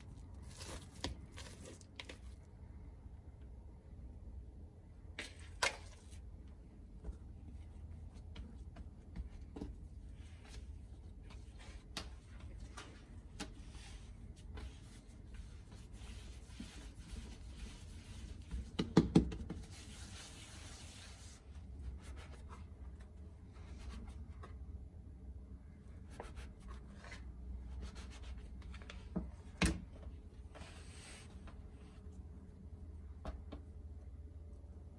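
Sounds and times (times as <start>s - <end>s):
hands kneading dough: 5.9s - 25.1s.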